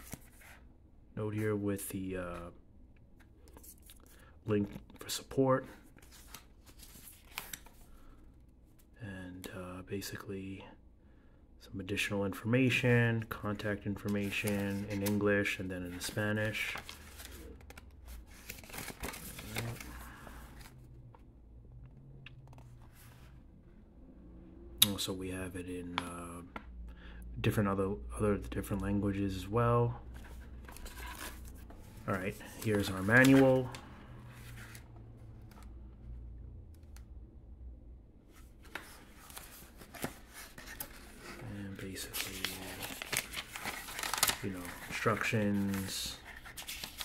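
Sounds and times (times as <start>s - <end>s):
paper rustling: 14.0s - 20.8s, 30.2s - 35.7s, 38.3s - 47.0s.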